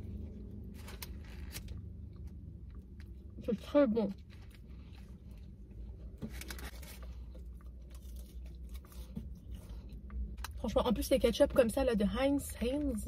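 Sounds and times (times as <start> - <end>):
person chewing food: 4.2 - 10.6.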